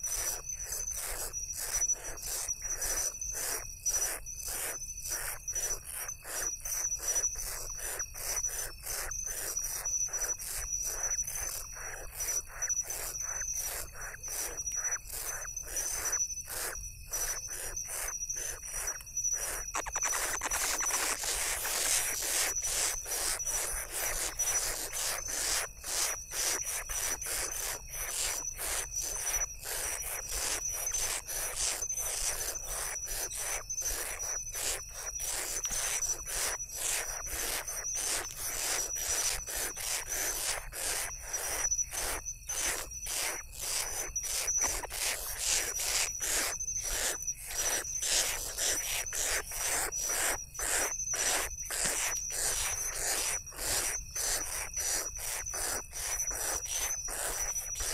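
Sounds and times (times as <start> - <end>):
high insect trill: 0.0 - 57.9
owl chicks rasping hisses: 18.4 - 24.4.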